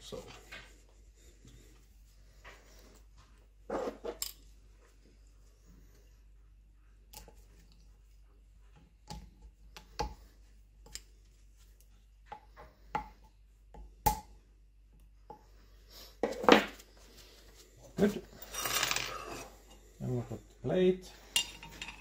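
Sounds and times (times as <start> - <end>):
metal parts clattering: 18.4 - 19.4
metal parts clicking and tapping: 21.4 - 22.0.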